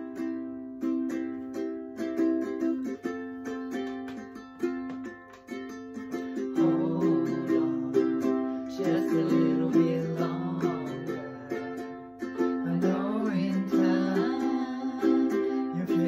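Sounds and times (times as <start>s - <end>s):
ukulele strumming: 0.0s - 16.0s
woman and man singing: 6.4s - 16.0s.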